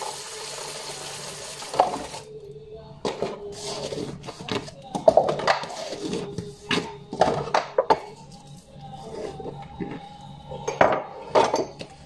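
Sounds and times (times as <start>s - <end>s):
glass and dishes clinking: 9.8s - 12.0s.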